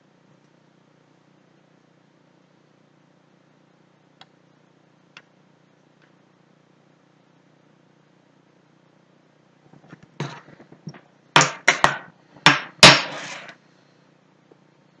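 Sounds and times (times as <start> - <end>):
objects knocking on hard surface: 9.7 - 13.6.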